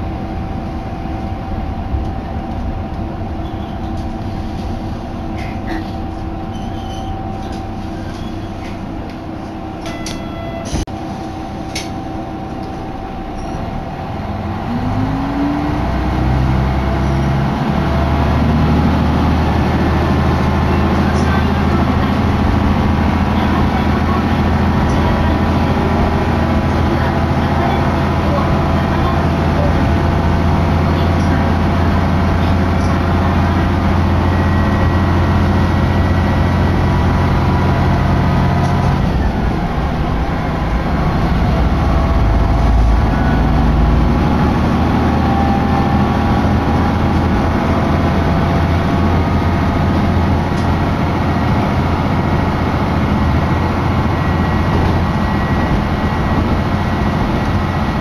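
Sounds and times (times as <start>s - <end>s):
diesel engine drone: 0.0s - 58.0s.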